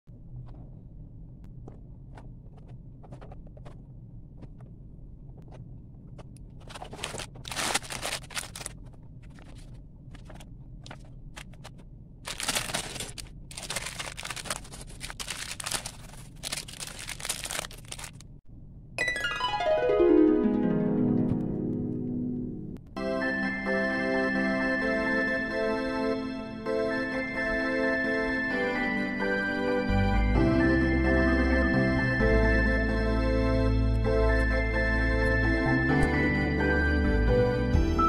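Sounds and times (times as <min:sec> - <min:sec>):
plastic bags crinkling: 0:06.6 - 0:11.6, 0:12.2 - 0:18.4.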